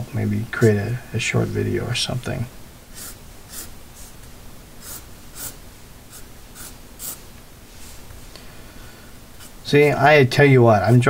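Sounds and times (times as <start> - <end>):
pen scratching on paper: 2.9 - 4.1, 4.8 - 7.2, 9.4 - 10.0.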